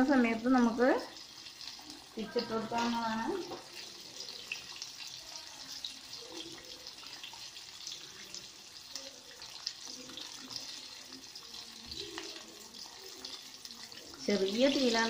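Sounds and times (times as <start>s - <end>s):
chicken deep-frying in oil: 0.0s - 15.0s.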